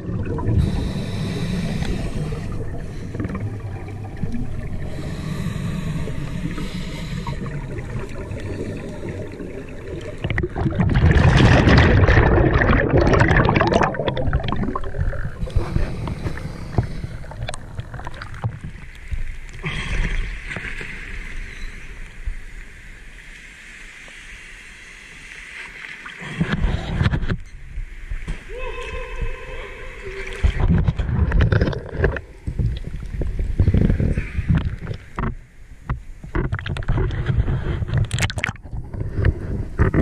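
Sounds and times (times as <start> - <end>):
exhaled bubbles from regulator: 0.0 - 18.9
low underwater rumble: 0.0 - 19.5.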